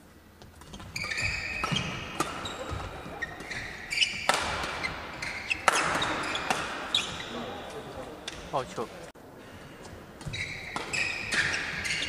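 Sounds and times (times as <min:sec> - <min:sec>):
sneakers squeaking on court: 0:00.5 - 0:08.5, 0:09.8 - 0:12.0
racket hitting shuttlecock: 0:00.6 - 0:07.2, 0:10.2 - 0:12.0.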